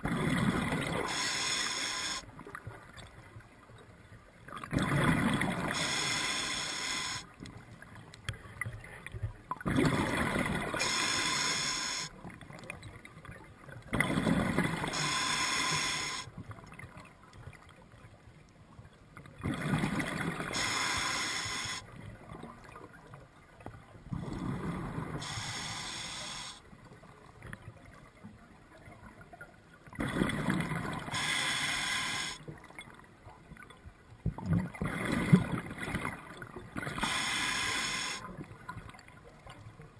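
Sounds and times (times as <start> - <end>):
diver breathing through regulator: 1.0 - 2.2, 5.7 - 7.3, 10.8 - 12.1, 14.9 - 16.3, 20.5 - 21.9, 25.2 - 26.6, 31.1 - 32.4, 37.0 - 38.2.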